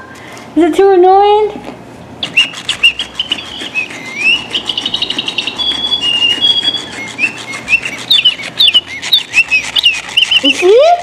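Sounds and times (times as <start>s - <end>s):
short fast trill: 2.2s - 10.7s
toy bird chirps and whistles: 2.2s - 10.7s.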